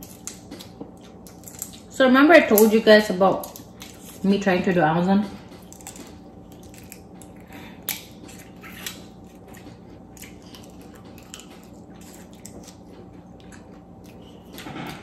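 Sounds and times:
wet eating smacks and clicks: 0:00.0 - 0:01.9, 0:05.4 - 0:15.0.

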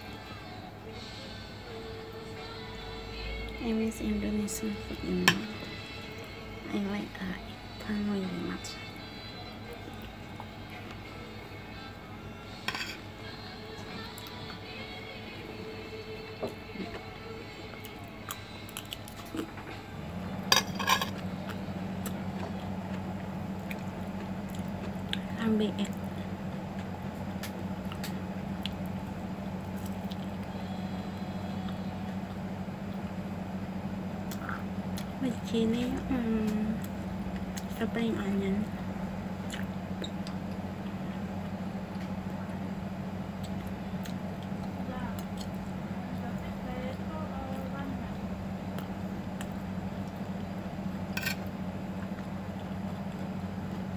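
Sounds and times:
steady low hum: 0:00.0 - 0:53.9
metal spoon clinking on plate: 0:20.5 - 0:21.2.

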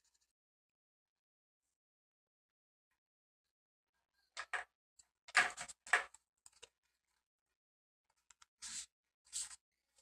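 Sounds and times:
cotton swab scratching paint: 0:08.6 - 0:09.6.

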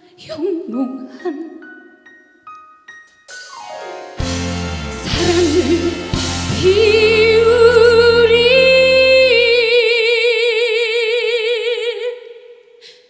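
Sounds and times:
woman singing with vibrato: 0:00.1 - 0:01.6, 0:04.9 - 0:12.8
band accompaniment: 0:03.3 - 0:09.4.

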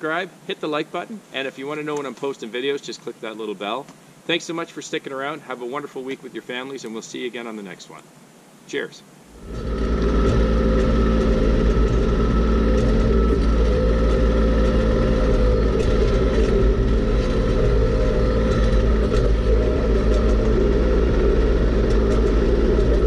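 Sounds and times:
tractor diesel engine running: 0:09.4 - 0:23.0.

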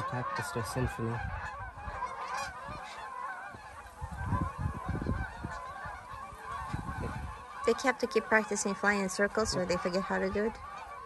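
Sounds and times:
geese honking: 0:00.0 - 0:11.0
low rumbles on microphone: 0:04.1 - 0:05.6.

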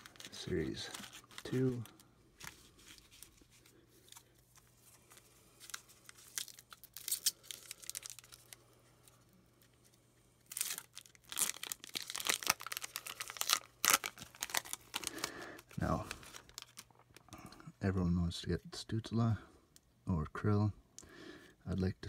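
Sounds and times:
foil wrapper crinkling and tearing: 0:00.0 - 0:09.2, 0:10.4 - 0:17.2.

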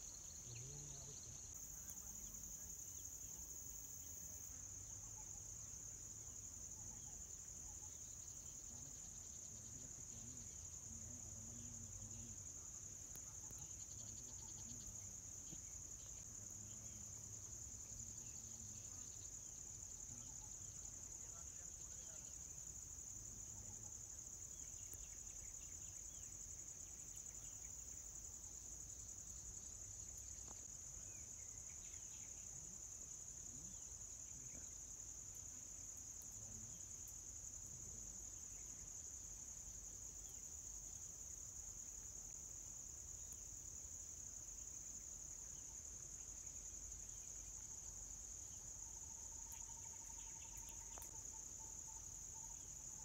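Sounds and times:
insects droning: 0:00.0 - 0:53.0
faint bird chirps: 0:13.1 - 0:22.5.

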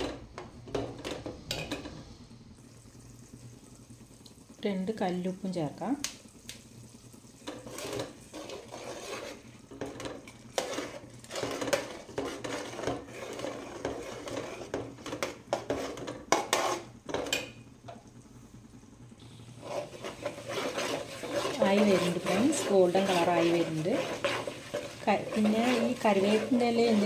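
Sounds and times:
faint sizzle: 0:00.0 - 0:27.0
ladle scraping in metal pot: 0:07.4 - 0:17.4, 0:19.6 - 0:27.0.

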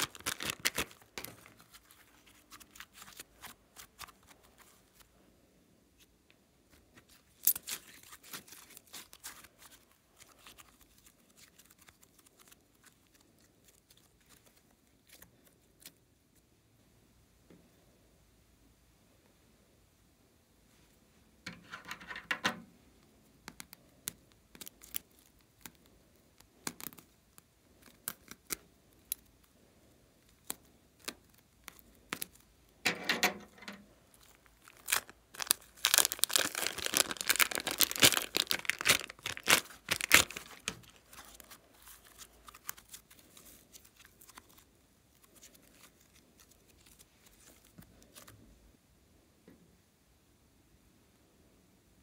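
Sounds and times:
slime crackling and popping: 0:00.0 - 0:05.0, 0:07.1 - 0:16.0, 0:23.5 - 0:29.3, 0:34.1 - 0:47.6
plastic bag crinkling: 0:00.0 - 0:05.1, 0:07.1 - 0:15.6, 0:33.4 - 0:48.3.

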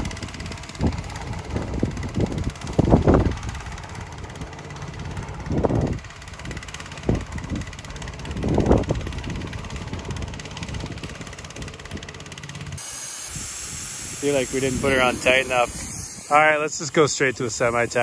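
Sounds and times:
air compressor humming: 0:00.0 - 0:18.0
wind buffeting microphone: 0:00.0 - 0:18.0.

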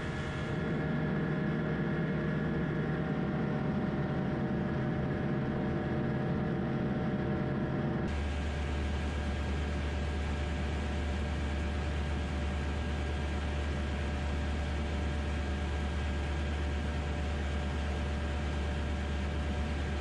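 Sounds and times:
aircraft engine and propeller droning: 0:00.0 - 0:20.0.

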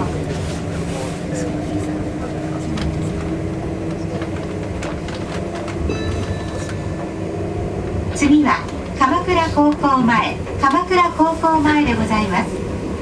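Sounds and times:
train rumbling on track: 0:00.0 - 0:13.0
wheels clicking over rails: 0:02.5 - 0:06.8.

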